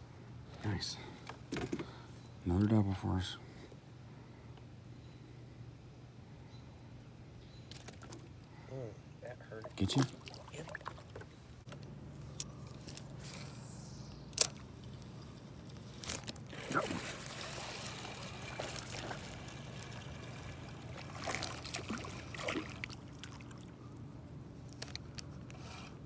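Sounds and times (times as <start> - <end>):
water splashing and trickling: 9.4 - 11.7, 14.2 - 24.1.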